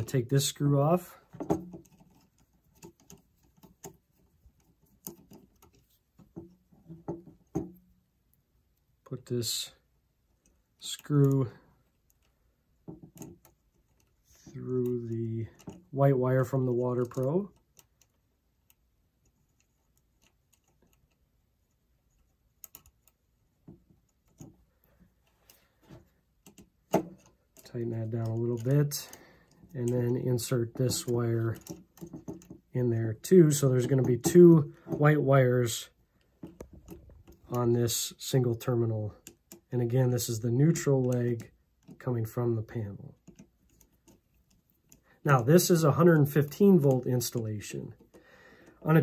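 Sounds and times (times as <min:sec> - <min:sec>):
screwdriver clicking and tapping: 0:31.6 - 0:32.6.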